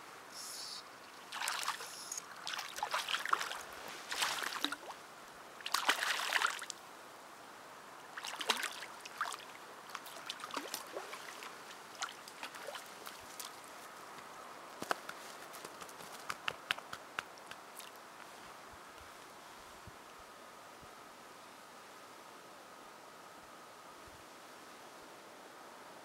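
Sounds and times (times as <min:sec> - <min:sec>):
fish splashing in water: 0:01.2 - 0:04.9, 0:05.6 - 0:06.7, 0:08.2 - 0:13.6.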